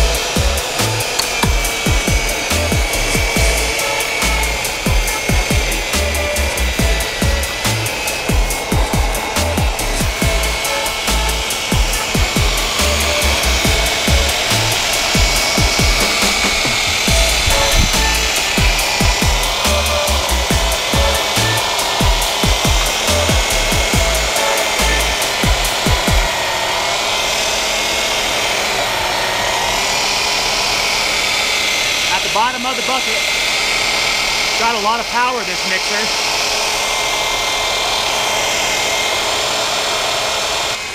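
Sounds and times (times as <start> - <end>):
mixer motor whining: 0.0 - 40.9
paddles scraping mortar: 0.6 - 4.8
low thumps: 13.4 - 19.6.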